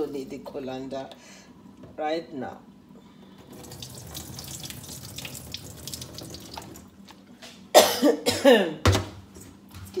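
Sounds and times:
water splashing into sink: 3.5 - 6.9
person coughing: 7.7 - 8.8.

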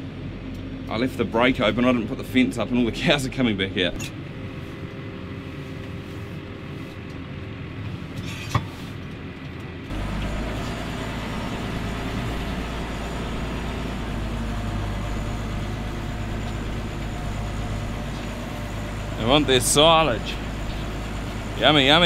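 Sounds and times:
tractor engine running: 9.0 - 22.0.

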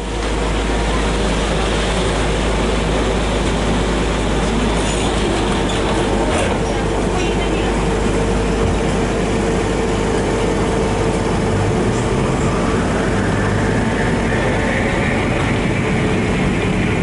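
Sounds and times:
rising tram motor whine: 0.0 - 17.0
tram interior rumble and hum: 0.0 - 17.0.

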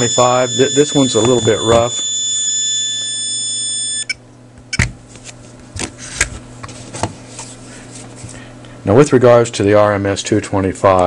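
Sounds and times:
multimeter beeping: 0.0 - 4.9.

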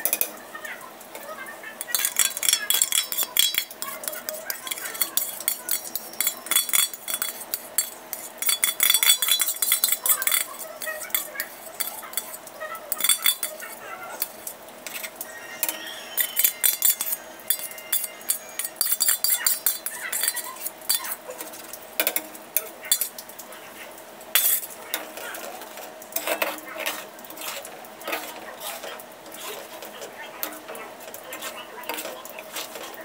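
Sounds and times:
metal spatula scraping a pan: 1.2 - 23.2, 24.4 - 33.0.

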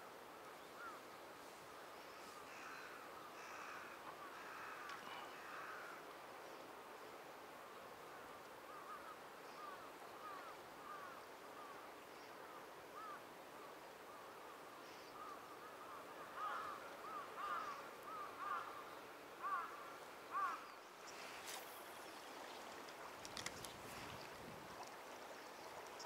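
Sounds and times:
faint steady hiss: 0.0 - 26.0
bird calling: 14.8 - 22.2
brief rustle: 21.1 - 21.9, 22.8 - 25.0.

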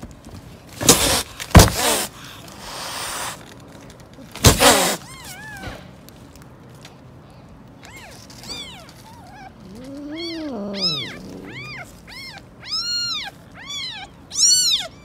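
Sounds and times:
cat hissing and spitting: 0.9 - 3.4, 4.4 - 5.1, 9.6 - 11.8
kitten mewing: 7.9 - 15.0.

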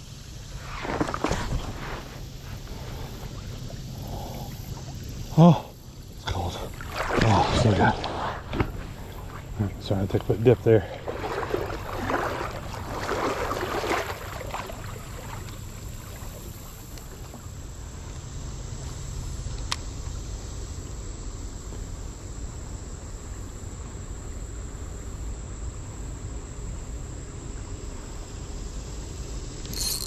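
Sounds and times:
insect drone: 0.0 - 30.0
water splashing around wader: 0.6 - 17.9
low outdoor rumble: 1.5 - 30.0.

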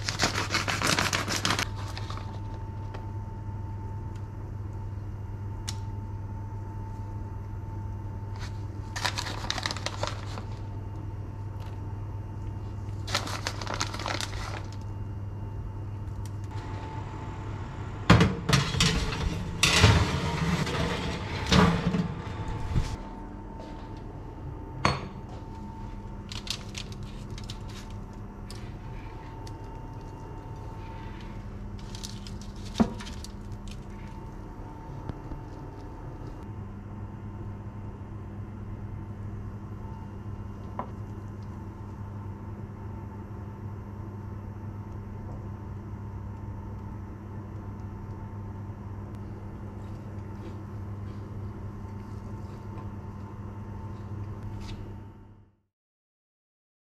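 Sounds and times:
steady hum: 0.0 - 55.4
plastic bag crinkling: 8.9 - 10.6, 12.9 - 14.9, 26.3 - 28.2, 31.8 - 34.2
metal baking tray scraping: 18.4 - 23.0.

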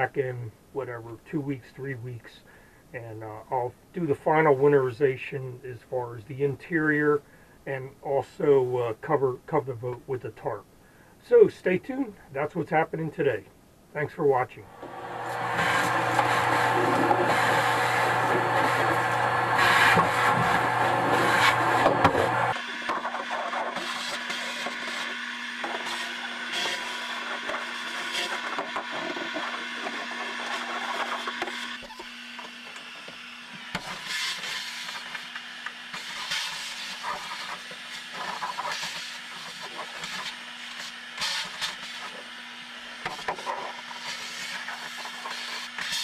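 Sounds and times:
shop vacuum running: 14.6 - 46.0
nozzle scraping fiberglass: 15.1 - 32.1, 33.7 - 35.3, 35.9 - 42.3, 43.0 - 46.0.

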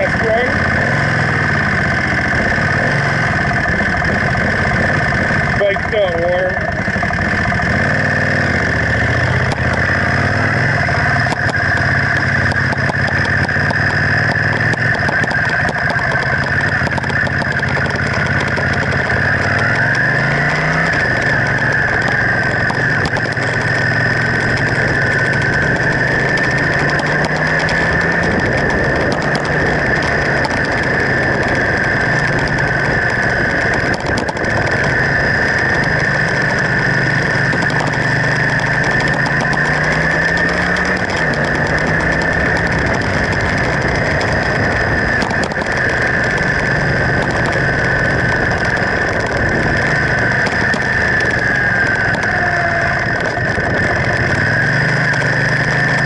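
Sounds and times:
motorcycle engine accelerating: 0.0 - 56.0.

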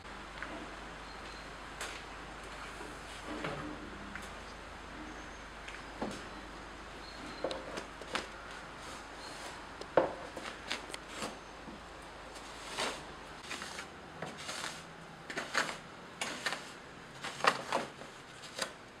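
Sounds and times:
stick scraping through powder: 12.3 - 17.7.

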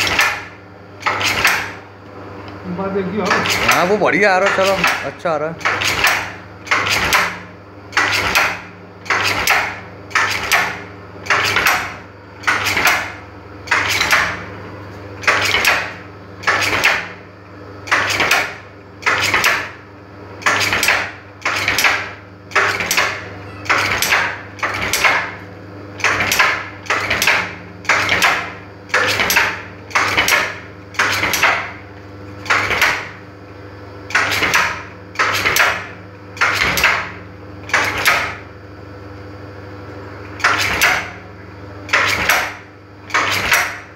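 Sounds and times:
motor hum: 0.0 - 43.9
tufting machine clattering: 2.8 - 7.4.

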